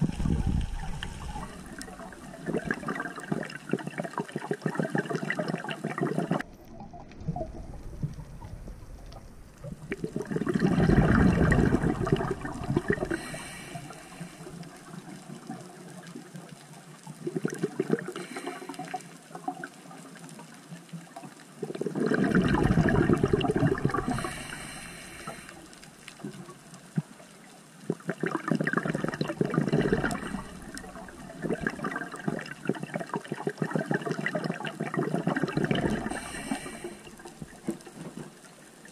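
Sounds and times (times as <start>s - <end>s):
exhaled bubbles bursting: 0.0s - 15.9s, 17.2s - 19.7s, 21.6s - 26.5s, 27.8s - 38.2s
regulator inhalation hiss: 13.1s - 14.7s, 24.1s - 25.7s, 36.1s - 37.2s.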